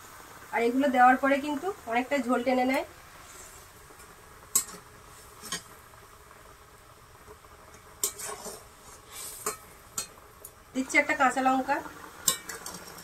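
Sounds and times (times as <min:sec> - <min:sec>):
gravy simmering: 0:00.0 - 0:13.0
metal spoon clinking on pan: 0:04.5 - 0:04.8, 0:12.2 - 0:13.0.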